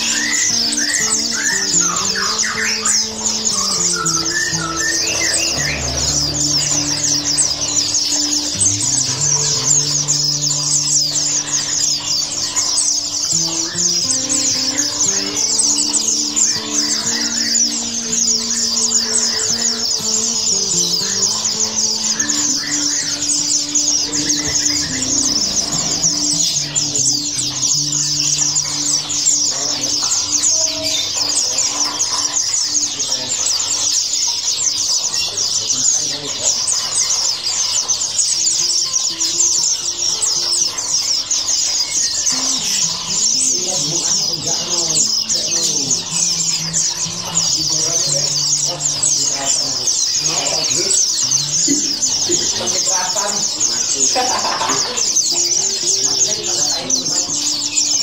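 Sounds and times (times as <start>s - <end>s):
people talking: 0.0s - 33.9s, 35.0s - 37.8s, 38.9s - 58.0s
songbirds chirping: 0.0s - 58.0s.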